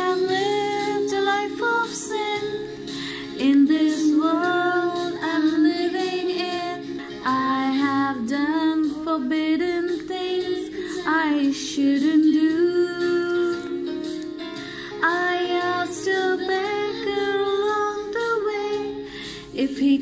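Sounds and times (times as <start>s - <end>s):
instrumental accompaniment chords: 0.0s - 20.0s
woman singing slow hymn: 3.4s - 13.8s, 15.0s - 18.9s, 19.5s - 20.0s.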